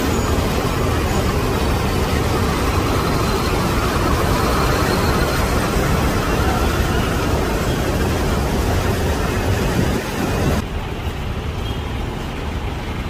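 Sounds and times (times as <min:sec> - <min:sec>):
road traffic noise: 0:00.0 - 0:13.0.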